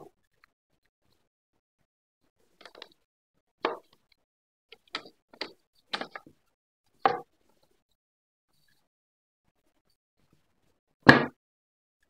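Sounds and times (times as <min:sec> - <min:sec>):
wooden knocks and clunks: 0:07.1 - 0:07.3, 0:11.1 - 0:11.3.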